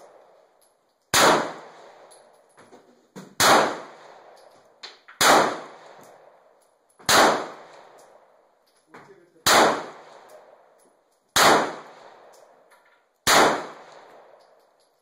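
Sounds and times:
pistol shots echoing: 0:01.1 - 0:02.3, 0:03.4 - 0:08.4, 0:09.4 - 0:10.8, 0:11.4 - 0:14.6.

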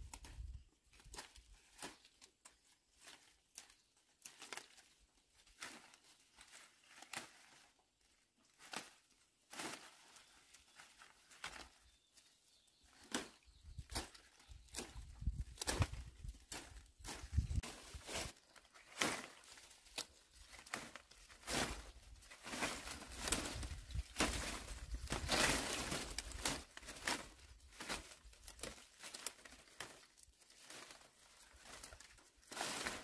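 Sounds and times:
rustling of leafy undergrowth: 0:00.0 - 0:33.0
plant stems snapping: 0:13.0 - 0:17.3, 0:18.8 - 0:22.0, 0:22.6 - 0:27.3.

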